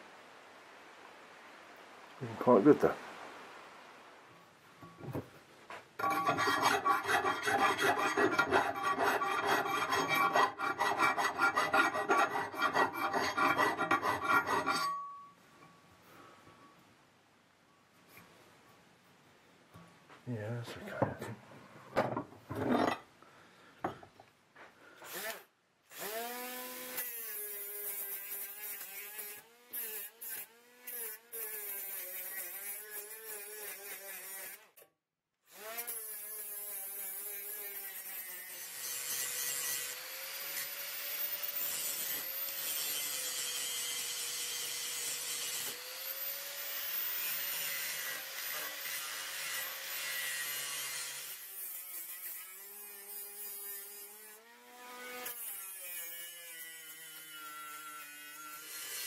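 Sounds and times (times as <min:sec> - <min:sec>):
large angle grinder grinding steel: 0:06.0 - 0:15.1, 0:25.0 - 0:34.8, 0:35.5 - 0:59.0
small angle grinder whining: 0:25.0 - 0:34.8, 0:35.5 - 0:59.0.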